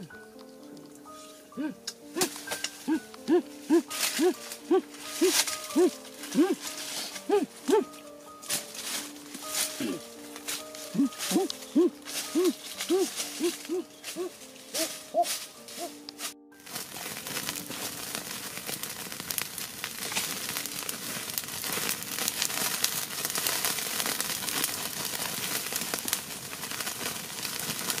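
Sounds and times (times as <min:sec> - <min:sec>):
wood fire crackling and popping: 0:00.0 - 0:28.0
short hooting calls: 0:01.6 - 0:08.0, 0:10.8 - 0:16.0.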